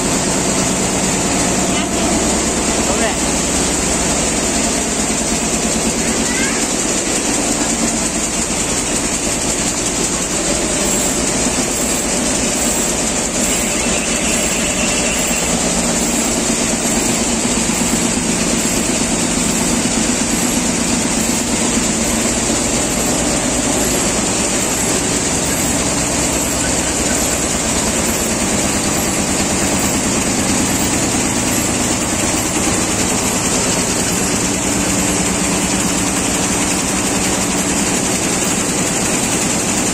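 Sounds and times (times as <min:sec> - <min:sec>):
quilting machine clattering: 0:00.0 - 0:39.9.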